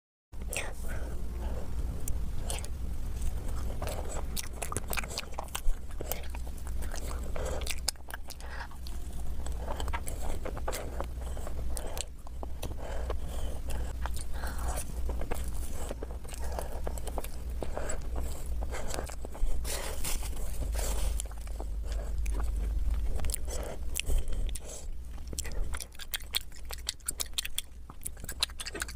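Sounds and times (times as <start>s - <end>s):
chewing cake: 0.4s - 28.9s
steady low hum: 0.4s - 28.9s
sticky mouth clicks: 21.2s - 28.9s.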